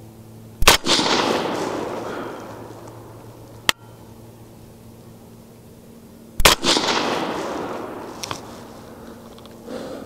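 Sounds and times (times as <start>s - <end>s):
suppressed rifle shot with echo: 0.6s - 4.1s, 6.4s - 9.3s.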